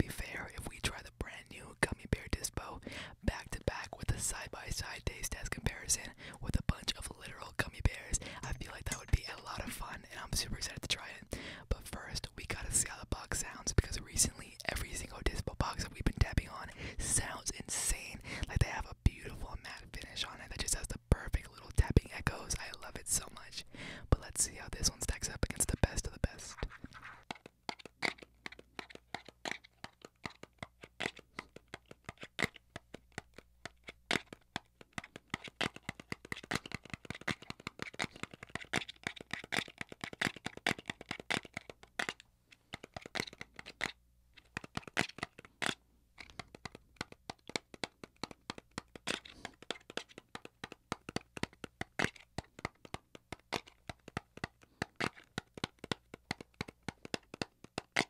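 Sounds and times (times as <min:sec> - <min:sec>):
fingers tapping on small box: 0:27.3 - 0:58.0.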